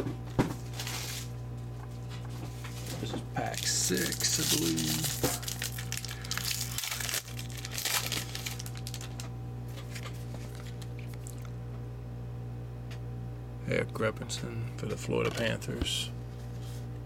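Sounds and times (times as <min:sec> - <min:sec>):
wrapper crinkling and tearing: 0:00.7 - 0:01.3, 0:02.8 - 0:11.5.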